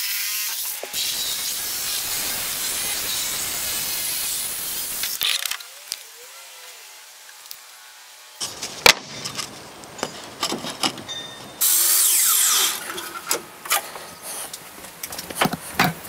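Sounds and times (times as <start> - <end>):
miter saw cutting plywood: 0.0 - 9.6, 11.6 - 13.9.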